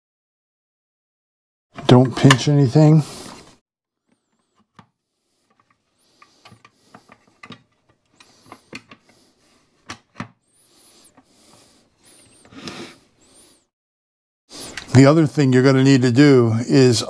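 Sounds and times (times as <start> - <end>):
plastic and metal parts clicking: 4.0 - 9.2.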